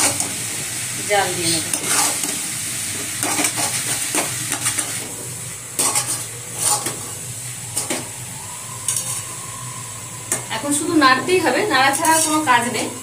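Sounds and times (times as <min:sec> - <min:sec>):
mixture sizzling: 0:00.0 - 0:13.0
spatula scraping a steel pan: 0:01.7 - 0:02.4, 0:05.8 - 0:07.2, 0:08.9 - 0:09.3, 0:11.9 - 0:12.5.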